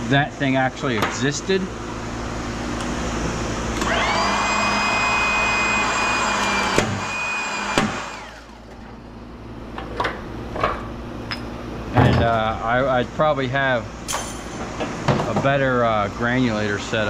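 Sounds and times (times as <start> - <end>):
electric motor whine: 3.7 - 8.7.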